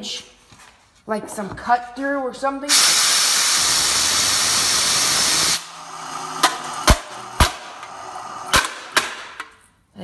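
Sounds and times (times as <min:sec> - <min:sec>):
compressed air hissing: 0:02.7 - 0:08.6.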